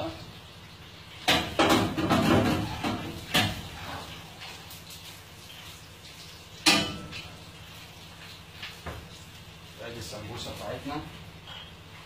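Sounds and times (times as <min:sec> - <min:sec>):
kitchen equipment clattering: 0:01.3 - 0:04.0.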